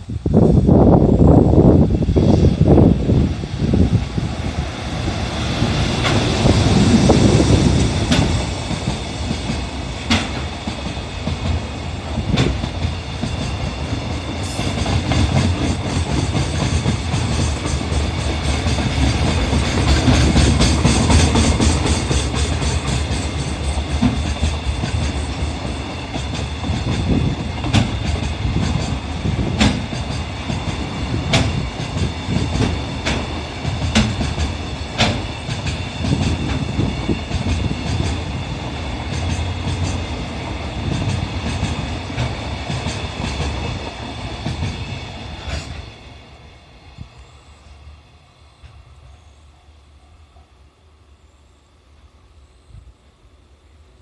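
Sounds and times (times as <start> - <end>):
freight train rumbling past: 0.0 - 54.0
wheels clacking over rail joints: 4.3 - 46.0.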